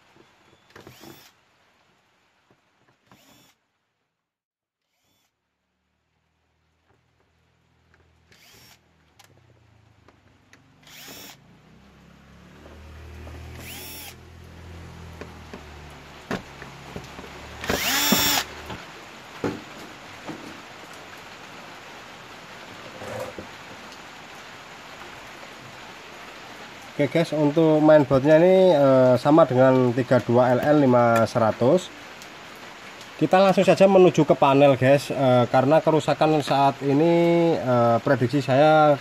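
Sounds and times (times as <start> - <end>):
cordless drill whining: 0.7 - 1.4, 3.0 - 3.6, 4.8 - 5.3, 8.3 - 8.8, 10.8 - 11.4, 13.4 - 14.2, 17.6 - 18.5.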